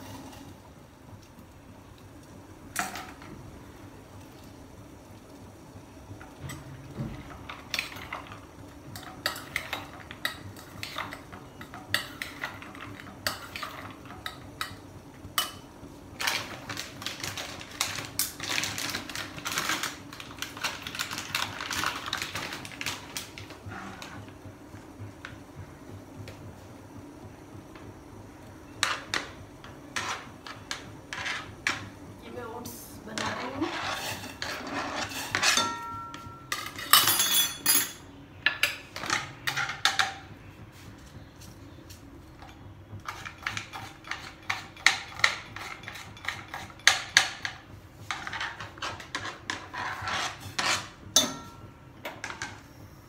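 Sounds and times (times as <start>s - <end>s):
metal utensils clinking in steel bowl: 33.2s - 40.1s.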